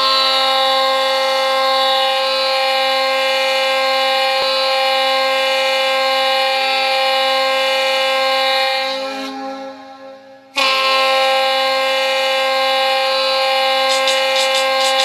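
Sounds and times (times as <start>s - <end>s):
goal horn blast: 7.8s - 15.0s.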